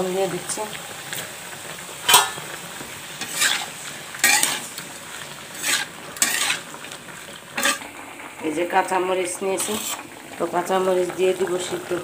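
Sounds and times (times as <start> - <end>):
low sizzle of frying: 0.0 - 12.0
metal spoon scraping a pan: 2.1 - 2.5, 3.2 - 4.8, 5.5 - 6.7, 7.6 - 7.9, 9.6 - 10.1.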